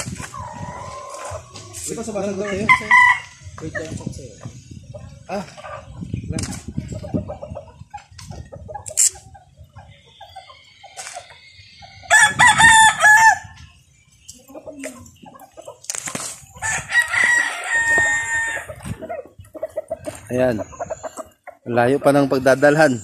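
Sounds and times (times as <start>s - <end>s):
rooster crowing: 12.1s - 13.5s, 16.6s - 18.7s.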